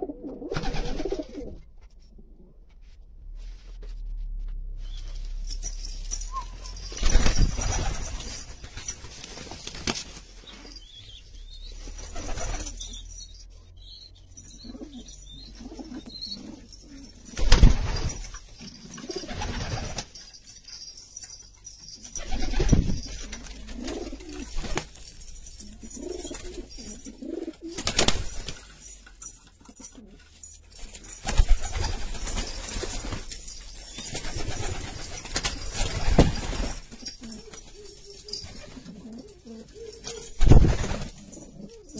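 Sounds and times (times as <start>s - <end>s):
pigeons cooing: 0.0s - 1.6s, 14.6s - 17.4s, 22.3s - 24.6s, 25.6s - 28.0s, 36.9s - 41.9s.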